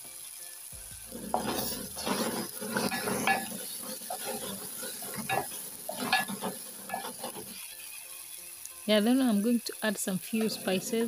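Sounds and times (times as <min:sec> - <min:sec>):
oil frying and sizzling: 0:00.0 - 0:11.0
spoon scraping metal pot: 0:01.0 - 0:07.8.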